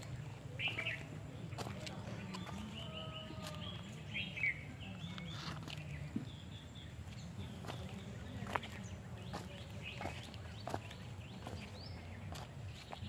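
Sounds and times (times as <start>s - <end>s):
birds chirping: 0.0s - 13.0s
footsteps walking: 0.7s - 3.9s, 7.1s - 13.0s.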